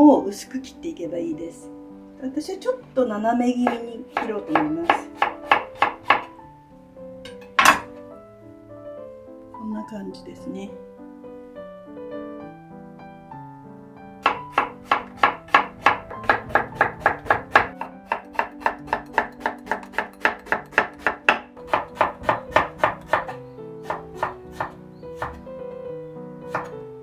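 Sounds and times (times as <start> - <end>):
soft piano music: 0.0 - 27.0.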